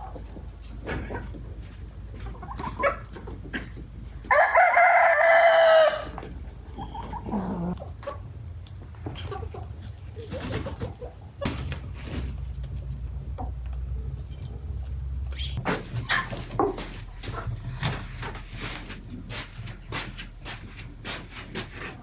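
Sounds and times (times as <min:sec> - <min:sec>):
rooster crowing: 0:04.3 - 0:06.2.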